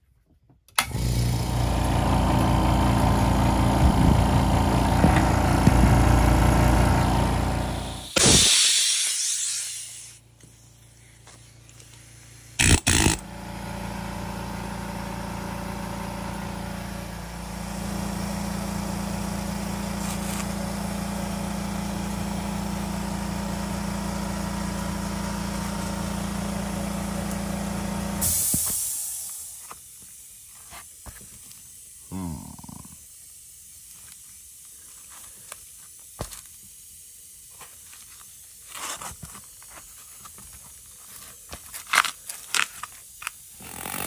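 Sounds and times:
air compressor motor running: 0.8s - 29.8s, 43.5s - 44.0s
air blasts: 2.9s - 13.8s, 28.1s - 29.8s
unloader valve venting air: 3.5s - 21.4s, 25.0s - 30.4s
air hissing from blow gun: 7.7s - 13.2s, 28.2s - 29.8s.

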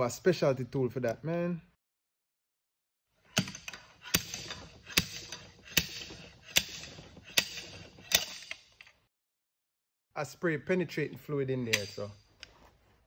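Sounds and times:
slide hammer slamming: 3.3s - 8.8s.

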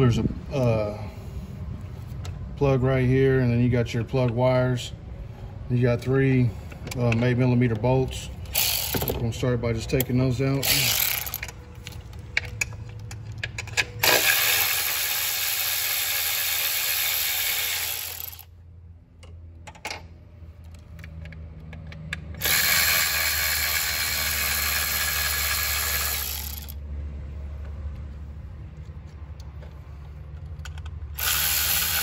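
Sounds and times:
cordless electric ratchet spinning: 8.5s - 9.2s, 10.6s - 11.6s, 14.0s - 18.5s, 22.4s - 26.8s, 31.1s - 32.0s.

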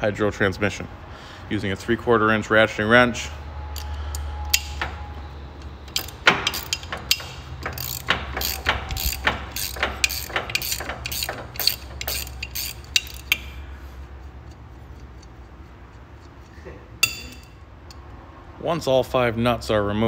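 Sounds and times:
ratcheting wrench clicking: 3.7s - 4.9s, 5.6s - 18.1s.

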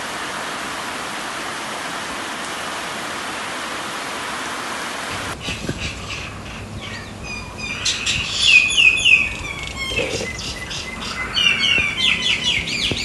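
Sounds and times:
birds chirping and singing: 5.4s - 13.0s.

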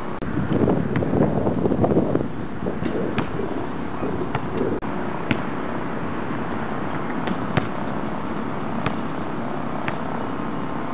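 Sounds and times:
basketball bouncing on concrete: 0.5s - 1.3s, 2.8s - 3.4s, 4.3s - 5.5s, 7.2s - 7.8s, 8.8s - 9.0s
ball hitting rim: 2.8s - 3.4s, 4.0s - 5.5s, 7.2s - 7.8s, 8.8s - 9.1s.

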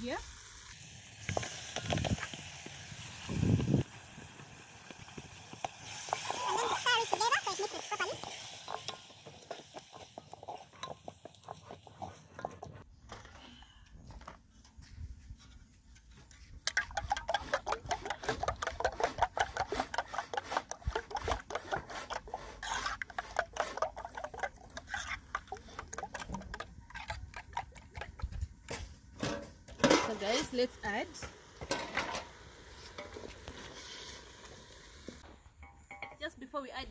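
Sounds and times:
pot being stirred: 4.8s - 12.9s, 16.3s - 34.4s
spoon beating eggs in metal bowl: 16.7s - 28.4s.

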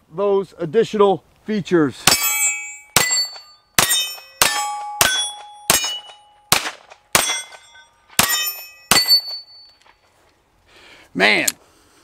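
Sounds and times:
steel target ringing: 2.0s - 9.8s
pistol shots: 2.1s - 9.4s.

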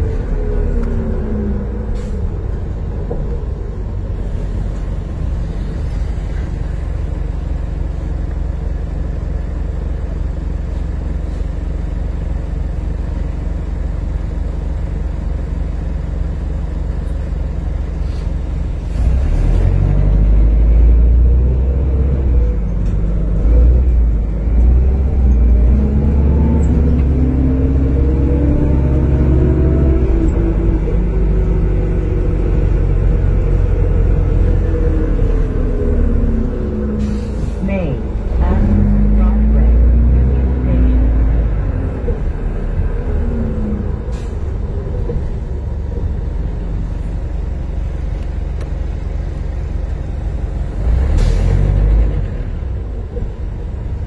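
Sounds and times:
bus engine low rumble: 0.0s - 54.0s.

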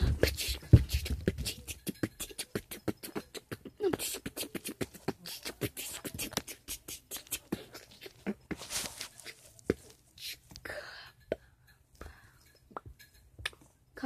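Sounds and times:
boy beatboxing: 0.0s - 11.2s, 12.7s - 13.6s.

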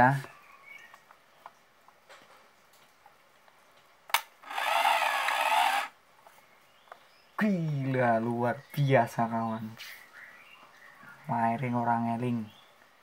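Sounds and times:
camera film winding motor whir: 4.1s - 6.0s.

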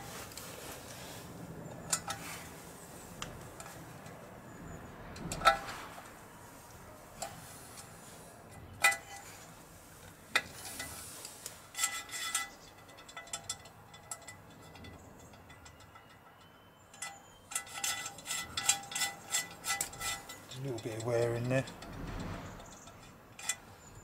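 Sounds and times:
metal tools clinking on engine: 1.6s - 2.6s, 8.5s - 9.5s, 11.6s - 24.0s.

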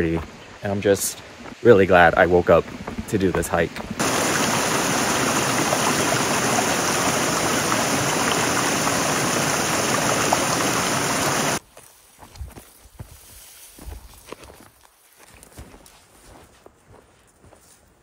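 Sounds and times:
running water rushing: 0.0s - 11.6s.

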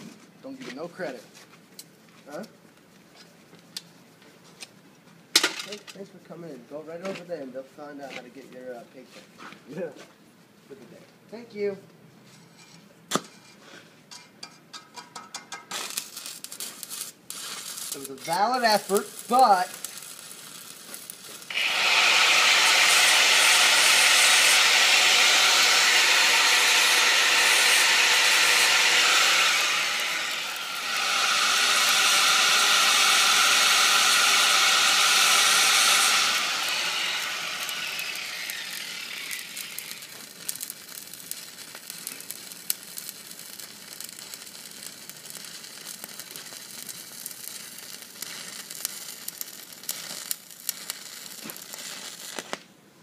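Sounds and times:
welding arc crackling hiss: 15.0s - 52.7s.

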